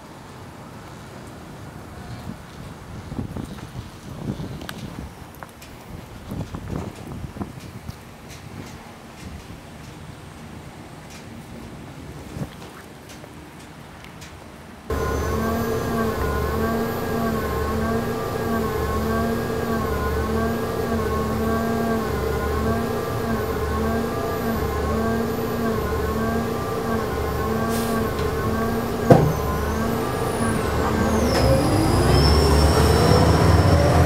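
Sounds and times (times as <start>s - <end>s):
bus machinery humming: 14.9s - 34.0s
wavering higher tones: 14.9s - 34.0s.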